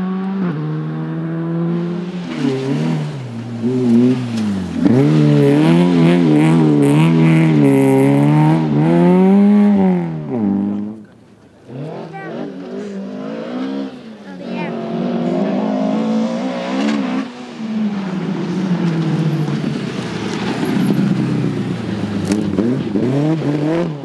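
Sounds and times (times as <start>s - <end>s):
rally car engine revving: 0.0s - 24.0s.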